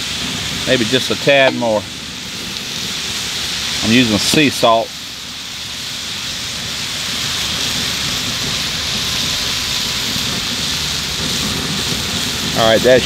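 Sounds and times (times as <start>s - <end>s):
meat sizzling on a griddle: 0.0s - 13.0s.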